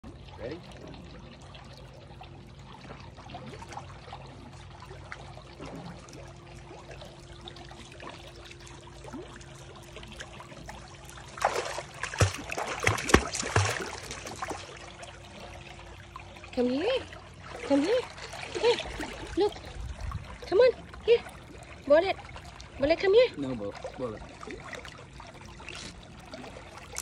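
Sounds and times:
water lapping: 0:00.0 - 0:27.0
dog splashing in water: 0:11.2 - 0:15.0, 0:26.4 - 0:27.0.

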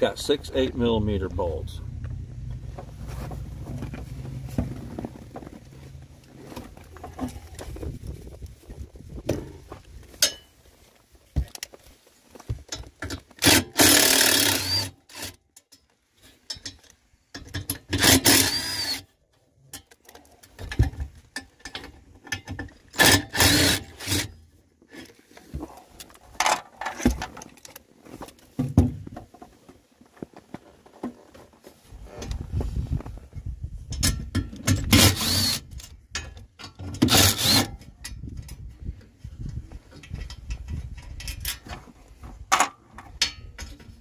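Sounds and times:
clicks and metal rattles: 0:12.6 - 0:18.6, 0:19.3 - 0:24.3, 0:24.9 - 0:31.4, 0:33.9 - 0:39.0, 0:39.8 - 0:44.0.

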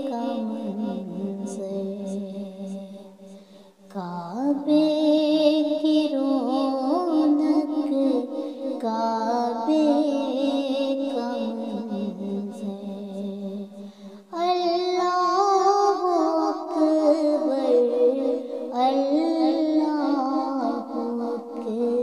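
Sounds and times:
person singing a hymn: 0:00.0 - 0:03.2, 0:03.9 - 0:22.0.

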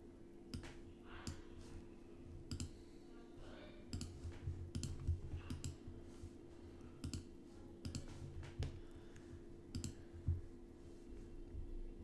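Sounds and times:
low steady hum: 0:00.0 - 0:12.0
computer mouse and keyboard clicks: 0:02.5 - 0:02.8, 0:03.9 - 0:05.8, 0:07.0 - 0:08.8, 0:09.7 - 0:10.0.

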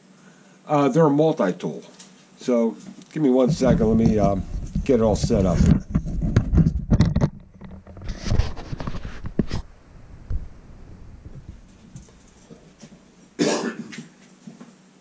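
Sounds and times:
man coughing: 0:13.4 - 0:14.2.

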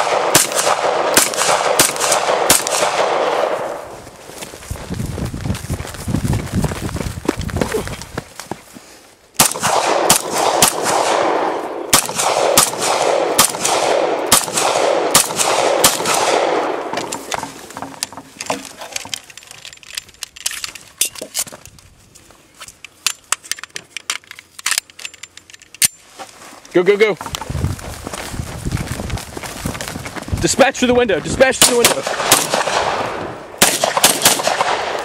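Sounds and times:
pistol shots with echo: 0:00.0 - 0:03.7, 0:09.4 - 0:16.9, 0:31.6 - 0:35.0
magazine clicks and rattles: 0:17.0 - 0:21.8, 0:22.6 - 0:26.0.

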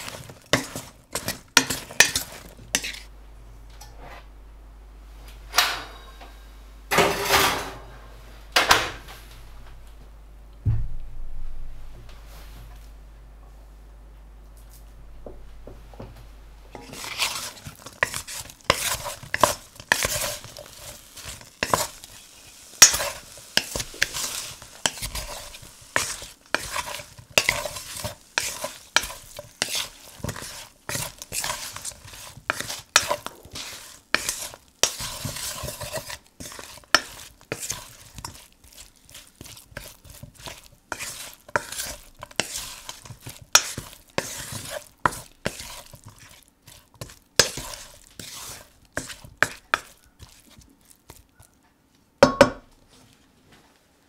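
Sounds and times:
wooden spatula scraping metal wok: 0:00.0 - 0:03.1, 0:16.7 - 0:51.4.

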